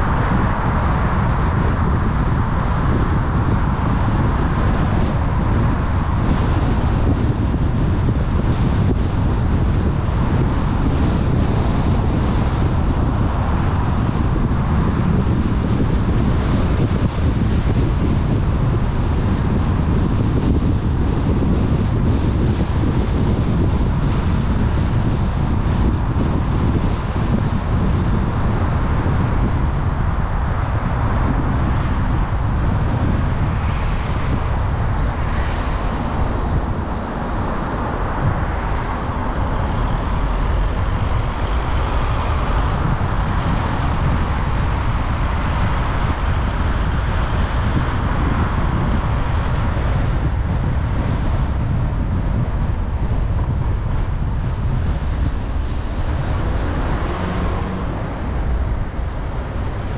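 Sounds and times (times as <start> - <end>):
car driving rumble: 0.0 - 59.9
tyres hissing on road: 30.3 - 49.6, 55.8 - 59.9.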